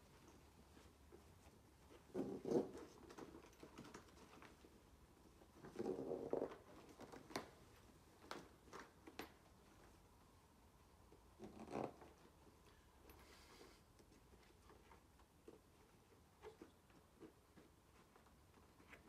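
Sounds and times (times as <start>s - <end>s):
webbing rustling and scraping: 0.0s - 10.1s.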